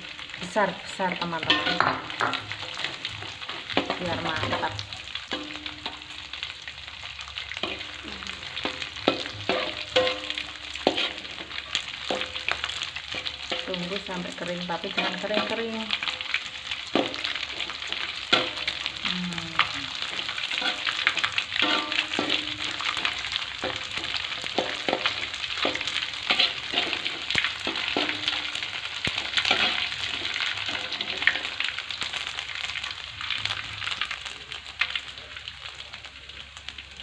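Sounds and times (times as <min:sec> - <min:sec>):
fish sizzling in hot oil: 0:00.0 - 0:37.0
metal spatula scraping a pan: 0:01.2 - 0:06.4, 0:07.4 - 0:13.7, 0:14.3 - 0:19.0, 0:19.6 - 0:32.3.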